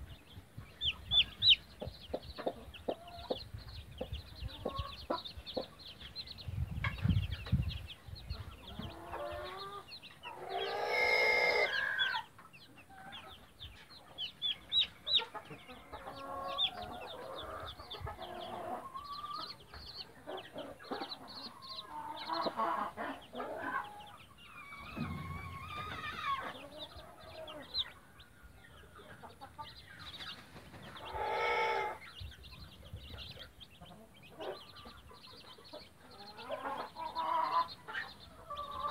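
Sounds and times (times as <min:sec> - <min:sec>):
chicks peeping: 0:00.0 - 0:38.9
hen clucking softly: 0:00.6 - 0:05.9, 0:08.3 - 0:38.9
rooster crowing: 0:10.5 - 0:12.2
low thuds: 0:24.8 - 0:26.5.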